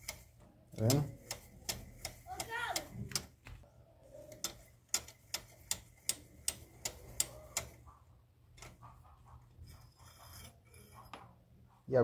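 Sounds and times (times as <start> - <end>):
wrench clicking metal on metal: 0.0 - 3.4, 4.3 - 7.8.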